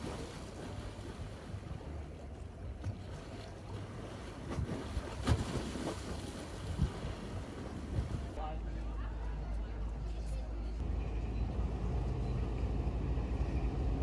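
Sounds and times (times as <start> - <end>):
wind rumbling on microphone: 3.7 - 8.4.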